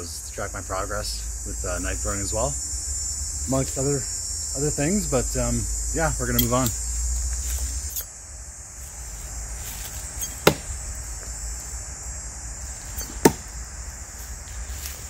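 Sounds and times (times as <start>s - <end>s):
knives thunking into tree trunk: 9.7s - 11.0s, 12.8s - 13.6s.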